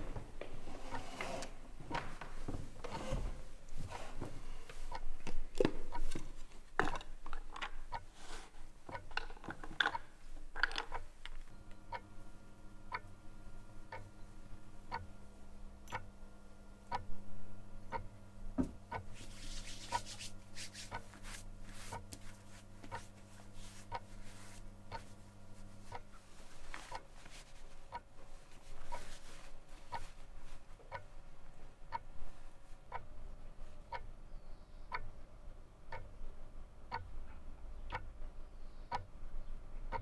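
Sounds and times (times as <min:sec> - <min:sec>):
clock ticking: 0:04.8 - 0:06.2, 0:06.8 - 0:08.1, 0:08.9 - 0:11.1, 0:11.7 - 0:12.2, 0:12.9 - 0:13.2, 0:13.9 - 0:14.1, 0:14.9 - 0:15.1, 0:15.9 - 0:16.1, 0:16.9 - 0:17.1, 0:17.9 - 0:18.1, 0:18.9 - 0:19.1, 0:20.9 - 0:21.2, 0:25.9 - 0:26.2, 0:31.9 - 0:32.1, 0:32.9 - 0:33.1, 0:35.9 - 0:36.2, 0:36.9 - 0:37.2, 0:37.9 - 0:38.2
low hum: 0:11.4 - 0:21.7.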